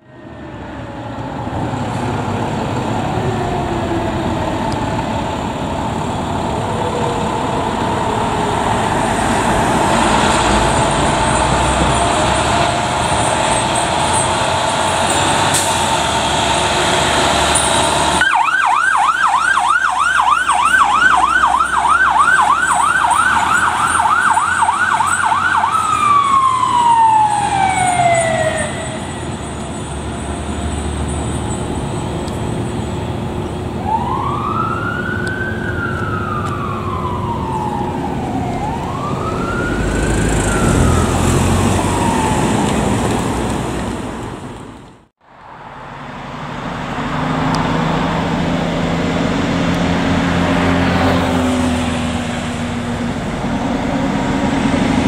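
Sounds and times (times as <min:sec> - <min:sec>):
fire truck engine: 0:00.0 - 0:55.0
street noise: 0:00.0 - 0:55.0
electronic siren yelping: 0:18.2 - 0:29.4, 0:33.8 - 0:42.8.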